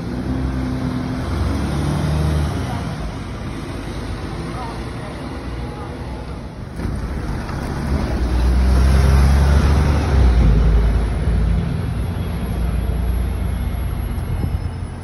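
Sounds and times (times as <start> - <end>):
bus engine rumbling: 0.0 - 15.0
tyre and road noise: 0.0 - 15.0.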